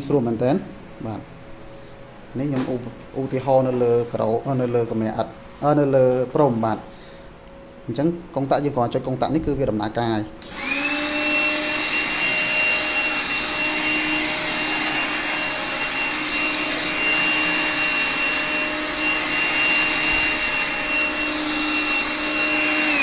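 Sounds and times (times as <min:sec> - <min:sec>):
stick vacuum running: 0:10.4 - 0:23.0
vacuum nozzle over carpet: 0:10.4 - 0:23.0.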